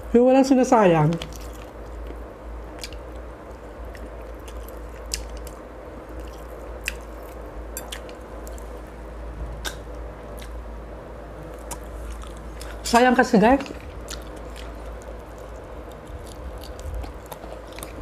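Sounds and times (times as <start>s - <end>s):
background hum: 0.0s - 18.0s
person chewing and sucking: 3.8s - 8.7s, 9.6s - 10.6s, 11.5s - 12.8s, 13.8s - 18.0s.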